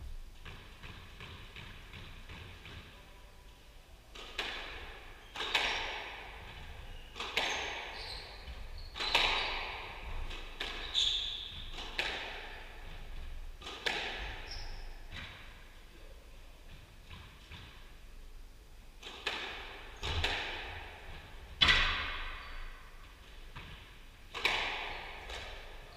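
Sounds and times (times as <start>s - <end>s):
squash ball hit with rackets: 0.4s - 2.9s, 4.1s - 13.0s, 13.6s - 14.5s, 19.0s - 25.9s
ball cracking against walls: 4.1s - 12.9s, 13.6s - 14.5s, 19.0s - 25.8s
shoes squeaking on wooden floor: 6.9s - 10.0s, 10.7s - 11.8s.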